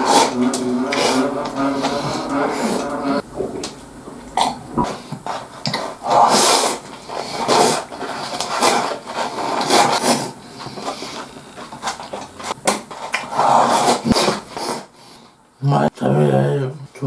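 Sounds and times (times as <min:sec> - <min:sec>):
chopsticks scraping a bowl: 0:00.0 - 0:03.2, 0:04.8 - 0:14.9
person chewing: 0:00.0 - 0:14.8.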